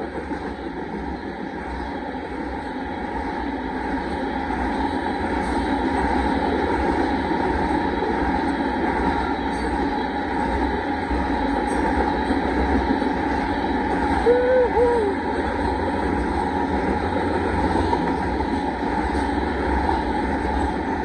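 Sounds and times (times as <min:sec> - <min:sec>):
freight train rolling on rails: 0:00.0 - 0:21.0.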